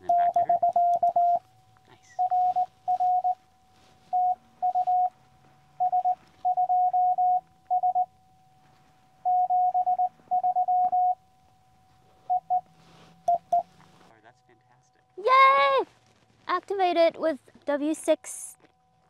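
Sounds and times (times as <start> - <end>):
morse code beeps: 0.0 - 1.4, 2.1 - 3.4, 4.0 - 5.2, 5.8 - 8.2, 9.2 - 11.2, 12.2 - 13.7.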